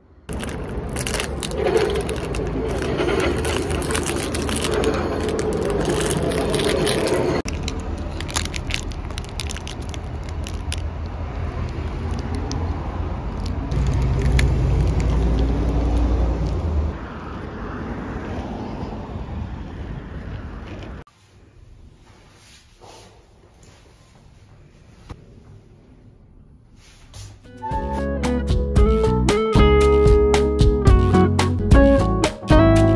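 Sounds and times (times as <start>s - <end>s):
road traffic rumble: 0.0s - 21.1s
plastic wrapper crinkling: 0.3s - 12.7s, 13.3s - 16.6s.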